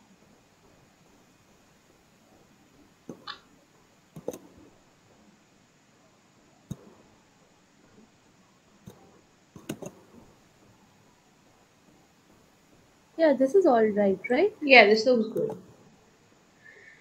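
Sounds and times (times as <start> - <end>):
computer mouse clicks: 3.1 - 3.4, 4.1 - 4.6, 6.7 - 6.9, 8.8 - 10.2, 15.3 - 15.7.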